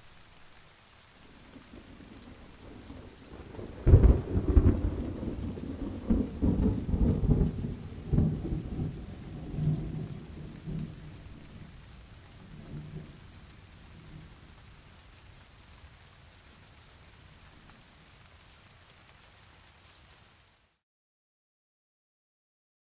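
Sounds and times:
steady rain: 0:00.0 - 0:20.8
thunder clap and rolling peals: 0:01.6 - 0:11.8.

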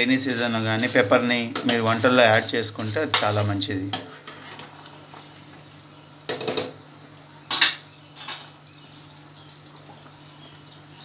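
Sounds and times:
spoon scraping cooking pot: 0:00.0 - 0:05.0.

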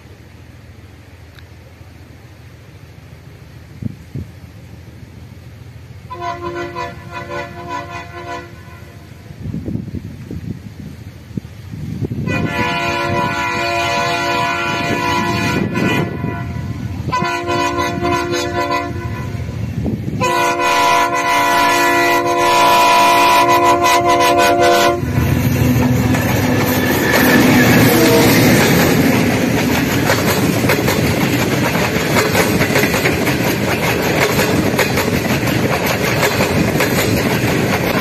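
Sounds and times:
locomotive engine: 0:00.0 - 0:38.0
train wheels on rails: 0:00.0 - 0:38.0
locomotive horn blasts: 0:06.1 - 0:09.3, 0:12.2 - 0:28.8.

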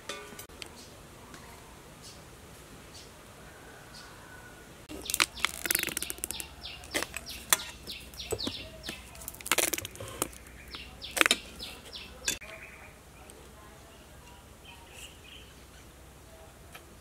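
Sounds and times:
small birds chirping: 0:04.9 - 0:17.0.

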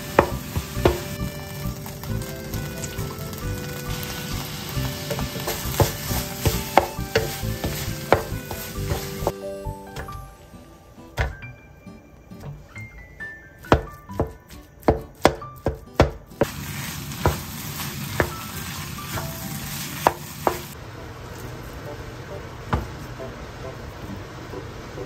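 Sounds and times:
sizzling hiss of frying: 0:00.0 - 0:10.5, 0:16.4 - 0:25.0
wooden spatula knocking on frying pan: 0:00.1 - 0:01.2, 0:04.9 - 0:09.3, 0:18.2 - 0:18.4.

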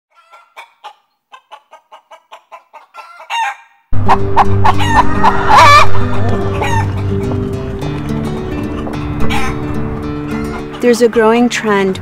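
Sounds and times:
hen squawk: 0:00.1 - 0:07.3
hens clucking: 0:00.1 - 0:11.1
loud cackling calls: 0:00.2 - 0:10.9.

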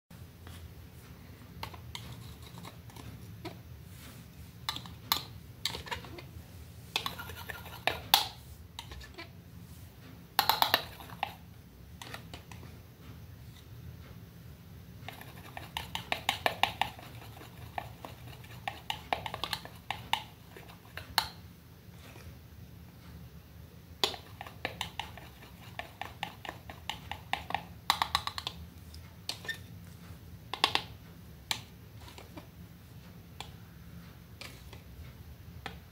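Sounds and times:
palette knife scraping and tapping: 0:01.6 - 0:06.3, 0:06.9 - 0:09.3, 0:10.4 - 0:11.4, 0:12.0 - 0:12.6, 0:15.0 - 0:21.4, 0:24.0 - 0:30.0, 0:34.4 - 0:35.9.

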